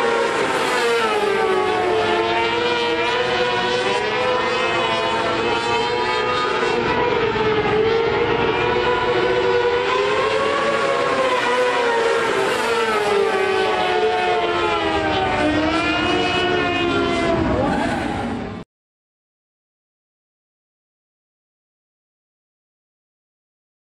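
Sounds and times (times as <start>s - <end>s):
motorcycle engine whining at high revs: 0.0s - 18.5s.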